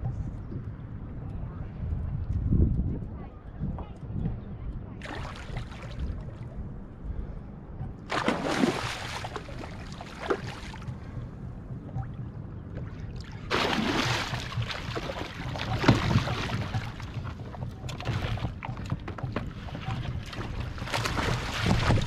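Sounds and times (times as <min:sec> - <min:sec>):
fish splashing at the surface: 0:08.1 - 0:10.6, 0:13.5 - 0:16.8.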